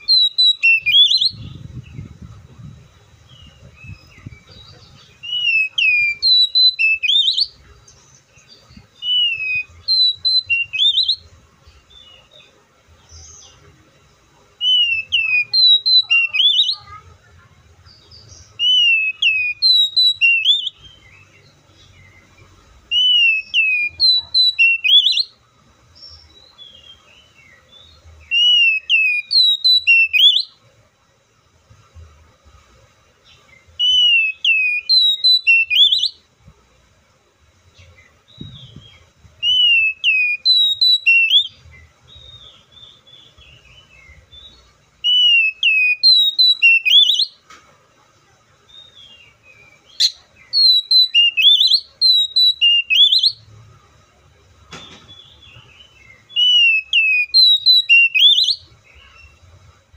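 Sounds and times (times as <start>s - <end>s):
bird singing whistled notes: 0.0s - 13.7s, 14.6s - 17.0s, 17.8s - 30.6s, 33.2s - 36.3s, 37.7s - 47.4s, 48.7s - 53.5s, 54.8s - 59.5s.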